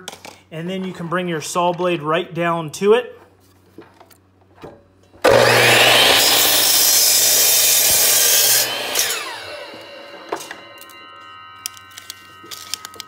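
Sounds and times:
miter saw cutting wood: 5.2 - 11.0
saw blade winding down: 5.2 - 13.0.

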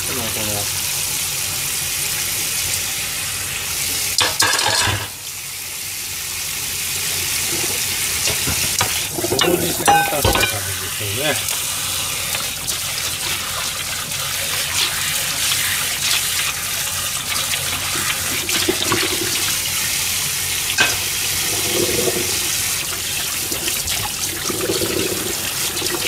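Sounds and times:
tap water running into sink: 0.0 - 26.0
dishware clink: 4.2 - 5.2, 8.3 - 10.8, 20.8 - 21.1.

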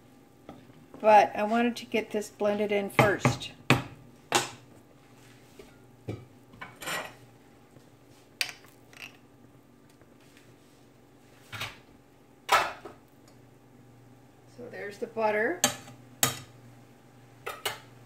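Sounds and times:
dishes and utensils clinking: 5.6 - 7.2.

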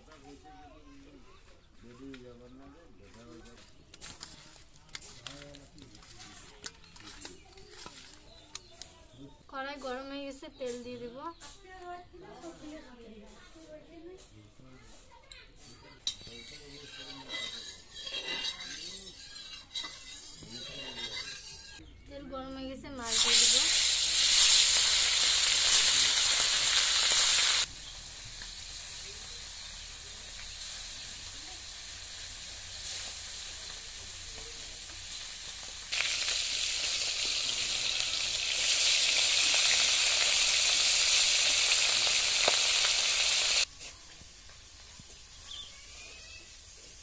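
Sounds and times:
fish frying in hot oil: 23.0 - 43.7.

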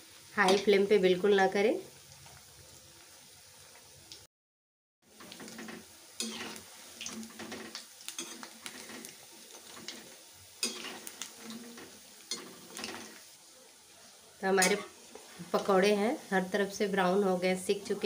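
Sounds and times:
food sizzling in hot oil: 0.0 - 4.3, 5.0 - 18.0
metal spoon scraping a pan: 5.2 - 13.2, 14.5 - 15.0.

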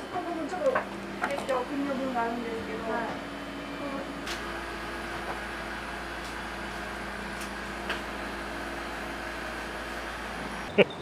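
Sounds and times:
refrigerator hum: 0.0 - 10.8.

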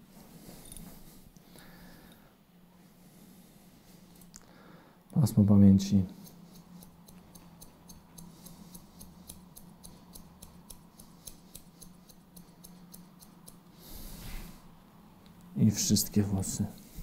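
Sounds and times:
scissors snipping hair: 6.0 - 13.7.

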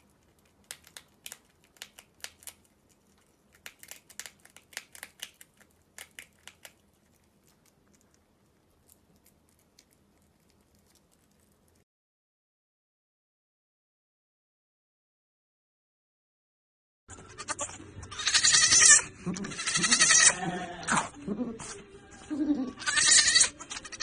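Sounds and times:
prairie dog crunching food: 0.0 - 11.8.

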